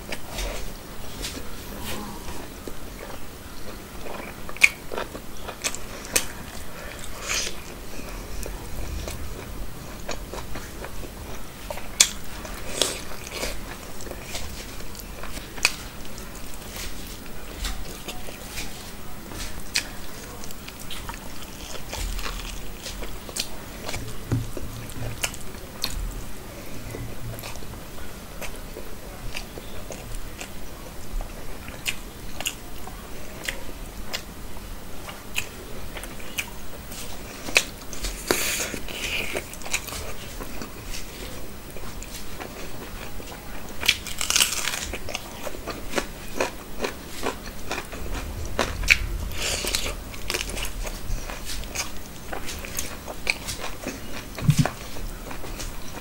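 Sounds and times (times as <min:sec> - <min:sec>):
person chewing with wet smacks: 0:03.0 - 0:09.5, 0:10.1 - 0:26.0, 0:33.4 - 0:34.3, 0:35.0 - 0:56.0.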